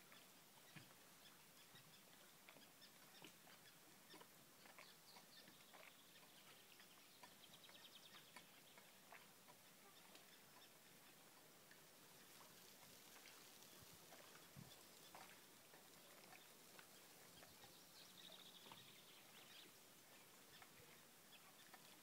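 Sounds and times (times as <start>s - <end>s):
small ticks: 2.4s - 10.8s, 11.6s - 22.0s
soft hiss: 6.0s - 22.0s.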